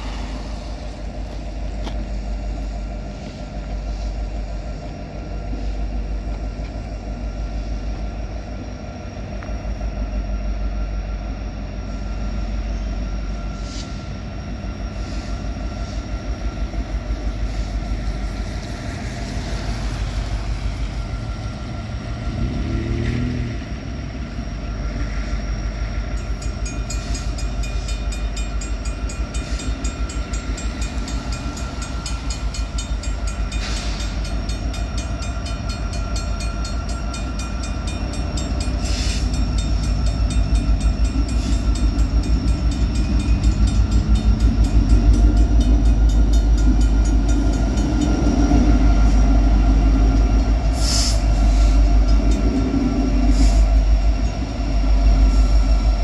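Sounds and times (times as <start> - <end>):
freight train rumbling: 0.0 - 56.0
high-pitched metallic sounds: 17.5 - 55.9.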